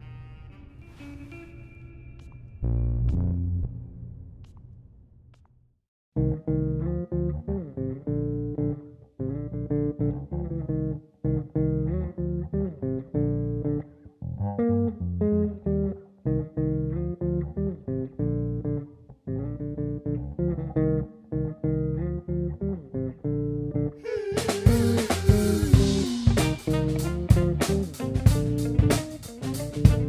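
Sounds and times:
electric bass guitar melody: 6.2s - 30.0s.

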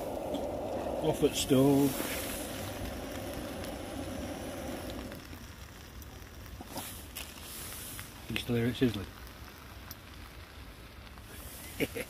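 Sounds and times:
gas stove burner hissing: 0.0s - 5.6s
food sizzling in a pan: 0.0s - 12.0s.

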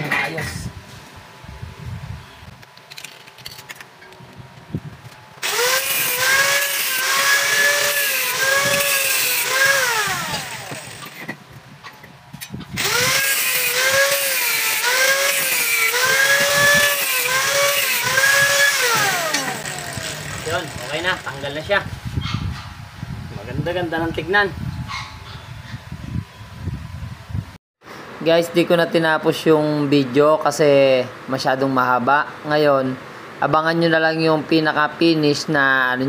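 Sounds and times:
angle grinder cutting metal: 5.4s - 11.3s, 12.8s - 21.6s.

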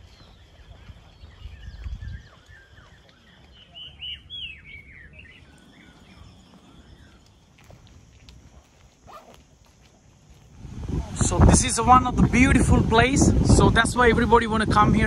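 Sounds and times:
birds singing: 0.0s - 7.9s.

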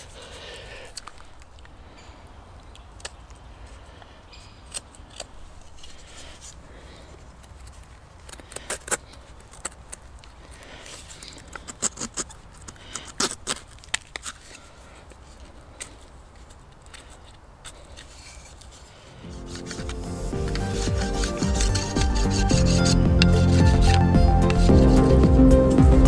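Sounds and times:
knife scraping wood: 7.4s - 25.2s.

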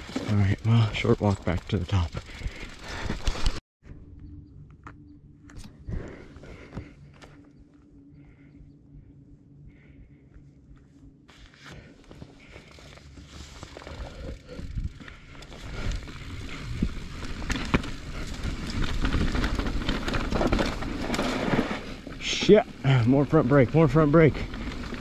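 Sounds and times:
bike rattling and clicking: 0.0s - 3.6s, 12.1s - 25.0s
tyres crunching over dirt and stones: 12.2s - 25.0s.

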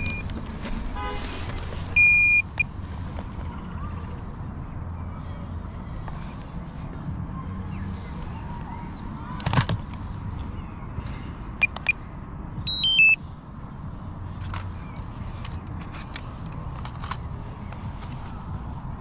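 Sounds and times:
drone short beeps: 12.7s - 13.2s.

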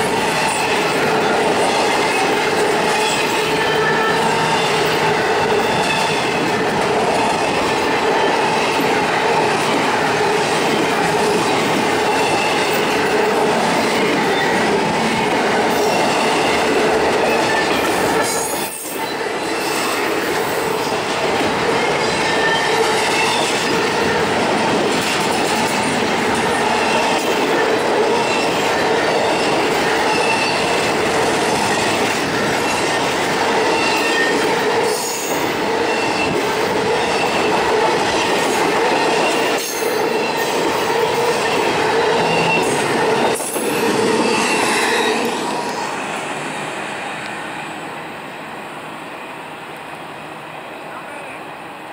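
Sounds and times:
freight train wheels rumbling on rail: 0.0s - 51.9s
high wheel squeals: 41.9s - 43.5s.

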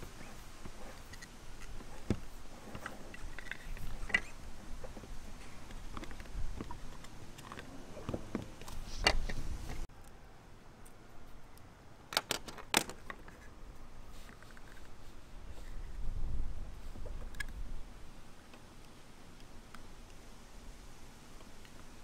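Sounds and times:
plastic box clicking: 12.1s - 13.2s.

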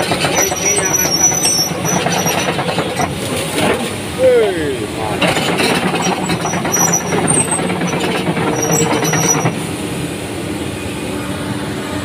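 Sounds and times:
short high-pitched squeaks: 0.0s - 3.2s, 5.4s - 9.6s
excavator diesel engine running: 0.0s - 12.0s.

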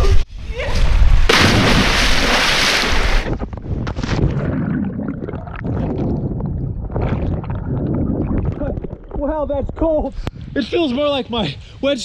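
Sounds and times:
person splashing into water: 1.3s - 3.4s
underwater bubbling and gurgling: 3.3s - 10.3s.

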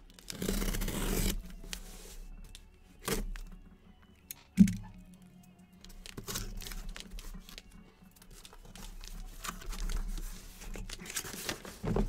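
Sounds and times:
cardboard rustling and scraping: 0.1s - 3.4s, 5.9s - 12.0s.

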